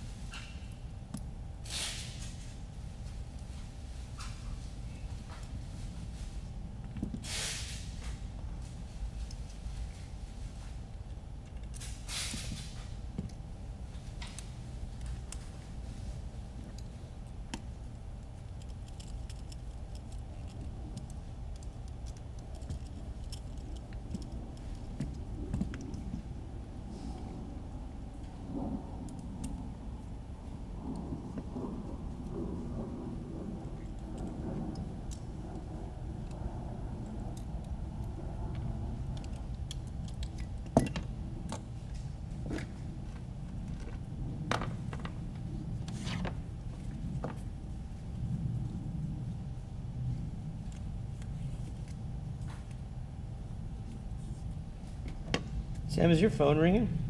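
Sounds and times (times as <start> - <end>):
low background noise: 0.0 - 57.0
low steady hum: 0.0 - 57.0
tools clicking and knocking on a mat: 6.8 - 7.2, 11.1 - 13.4, 16.6 - 26.3, 39.2 - 41.7.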